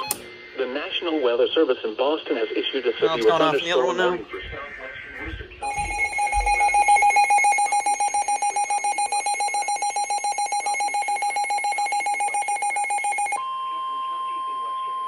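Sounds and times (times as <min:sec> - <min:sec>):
weather alert radio rapid beeping: 0:05.6 - 0:13.4
steady single tone alarm: 0:05.6 - 0:15.0.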